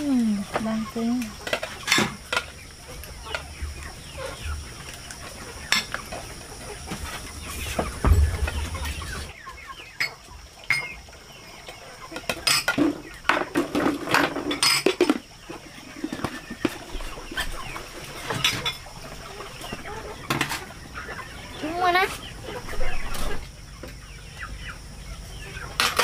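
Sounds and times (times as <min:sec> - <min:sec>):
chickens clucking: 0:00.0 - 0:26.0
sharp knocks and clatter: 0:07.7 - 0:09.3.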